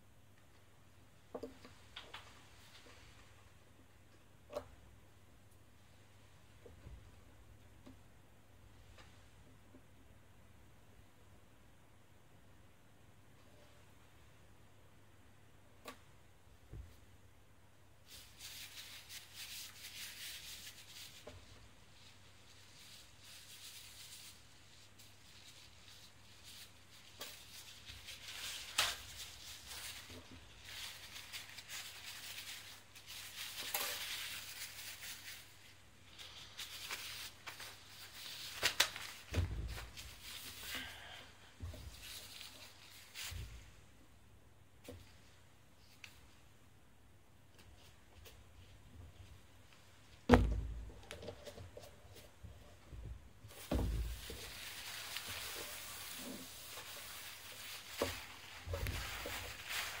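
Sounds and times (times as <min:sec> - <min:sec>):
paper towels rustling: 0:18.0 - 0:43.9, 0:53.4 - 1:00.0
dull thump on table: 0:50.3 - 0:50.8
steady hiss: 0:51.7 - 1:00.0.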